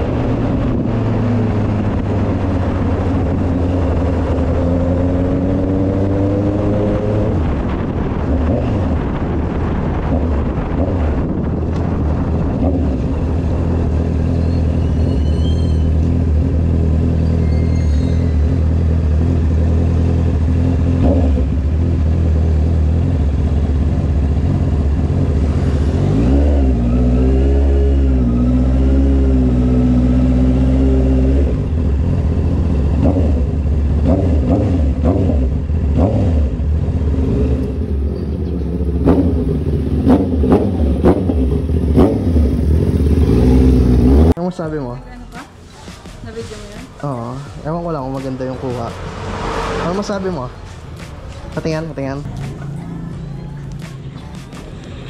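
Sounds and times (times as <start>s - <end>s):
motorcycle engine running: 18.4s - 26.1s, 28.6s - 44.4s
sharp engine revs: 48.2s - 51.5s.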